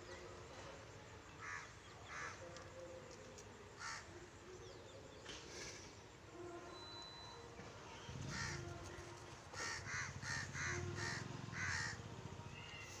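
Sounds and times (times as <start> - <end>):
crows cawing: 1.4 - 2.4, 3.8 - 4.1, 8.3 - 8.6, 9.6 - 12.0.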